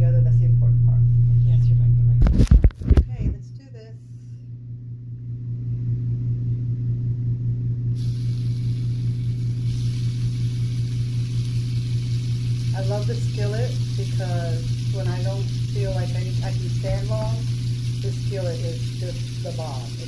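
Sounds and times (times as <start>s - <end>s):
steady low hum: 0.0s - 20.0s
bacon sizzling in a skillet: 8.0s - 20.0s.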